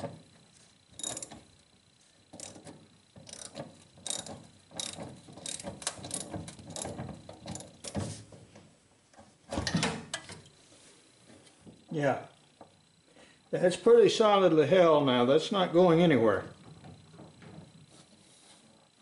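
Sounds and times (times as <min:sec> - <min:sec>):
socket ratchet clicking: 0:01.0 - 0:01.5, 0:02.4 - 0:08.0.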